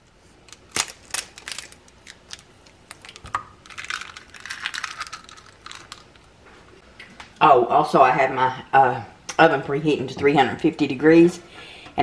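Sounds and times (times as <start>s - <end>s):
eggshell crackles and crunches: 0.4s - 6.4s
eggshell cracking: 0.5s - 6.3s.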